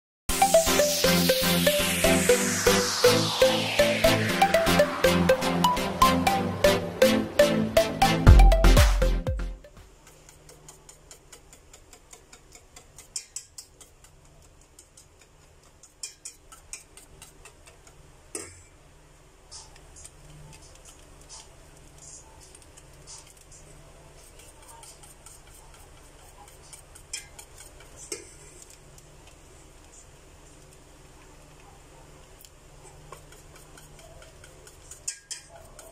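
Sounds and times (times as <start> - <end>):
whisk clicking in a metal pot: 9.8 - 18.8, 19.8 - 29.9, 32.2 - 35.9.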